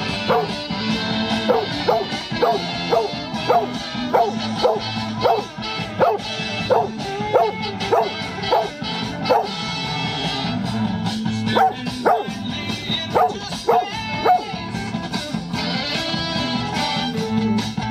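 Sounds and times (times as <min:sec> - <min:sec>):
dogs yipping: 0:00.0 - 0:00.7, 0:01.3 - 0:09.6, 0:11.5 - 0:12.4, 0:13.0 - 0:14.6
song playing: 0:00.0 - 0:17.9.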